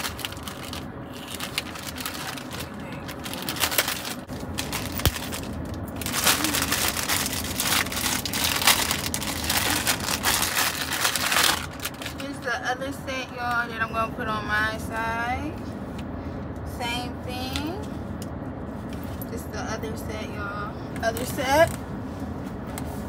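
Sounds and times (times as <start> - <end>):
plastic packaging crinkling: 0.0 - 12.4.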